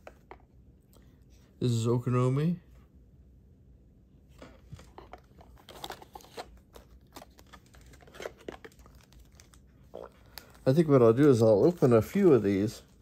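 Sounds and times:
foil wrappers crinkling: 0:05.0 - 0:13.0.

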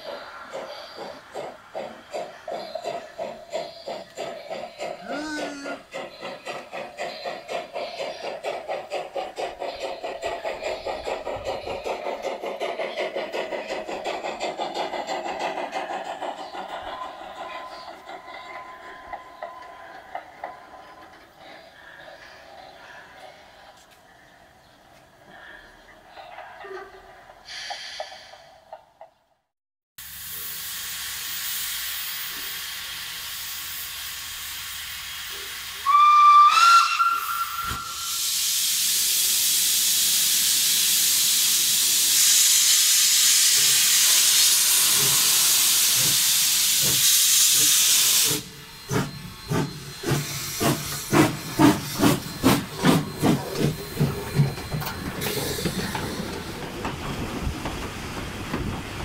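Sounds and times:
steam hissing loudly: 0:00.0 - 0:22.8, 0:30.0 - 0:59.0
locomotive exhaust chuffs: 0:30.1 - 0:59.0
steam locomotive whistle: 0:35.8 - 0:38.9.

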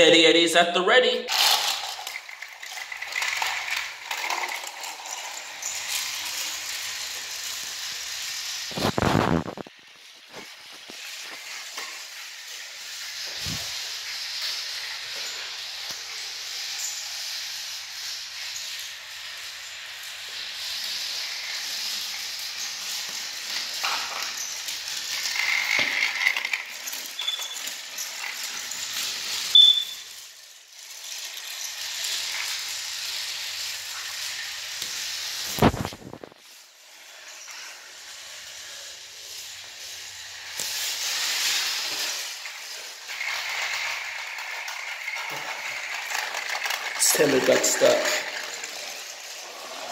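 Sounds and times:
rattle of train wheels: 0:01.3 - 0:08.6, 0:10.6 - 0:35.4, 0:39.3 - 0:49.9
toy train motor whir: 0:01.3 - 0:49.9
short high chirps: 0:29.5 - 0:30.1.

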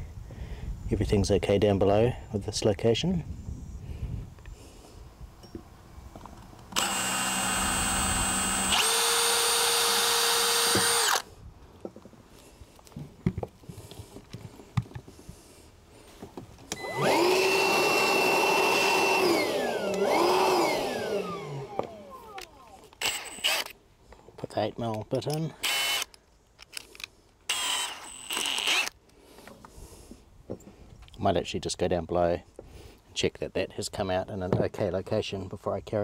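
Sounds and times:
cordless drill drilling: 0:06.7 - 0:11.3, 0:16.7 - 0:23.8, 0:25.6 - 0:26.2, 0:27.5 - 0:29.0.

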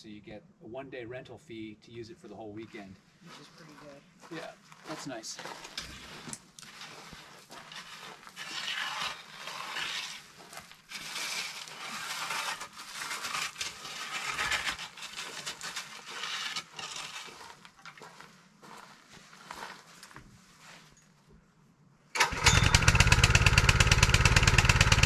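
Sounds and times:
rake scraping through gravel: 0:02.7 - 0:21.0.

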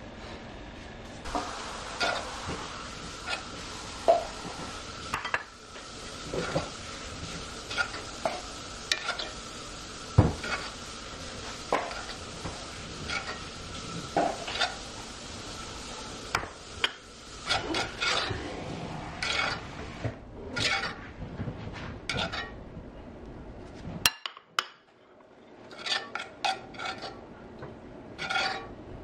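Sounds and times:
sauce sizzling: 0:01.2 - 0:20.0
metal spoon scraping a skillet: 0:01.3 - 0:02.4, 0:03.2 - 0:04.4, 0:06.2 - 0:09.5, 0:10.3 - 0:10.8, 0:11.4 - 0:14.9, 0:16.3 - 0:19.9, 0:20.6 - 0:21.1, 0:22.1 - 0:22.6, 0:25.6 - 0:27.2, 0:28.2 - 0:28.7.

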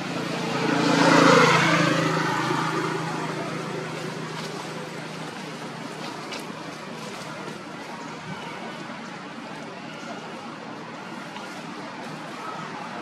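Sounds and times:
passing vehicle engine: 0:00.0 - 0:06.6.

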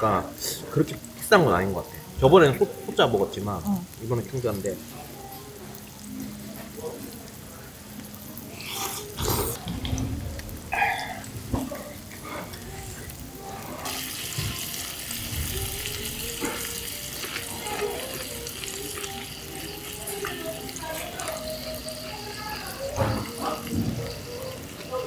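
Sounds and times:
food sizzling on a griddle: 0:00.0 - 0:25.0
person slurping broth: 0:08.6 - 0:09.6.

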